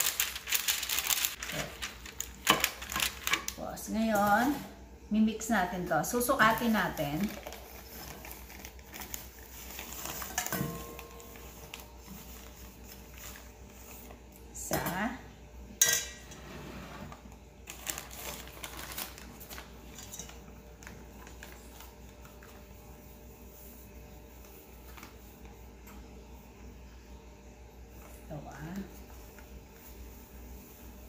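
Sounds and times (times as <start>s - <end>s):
kitchenware clinking on steel bowls: 10.2s - 11.4s, 15.8s - 16.4s, 19.9s - 20.4s.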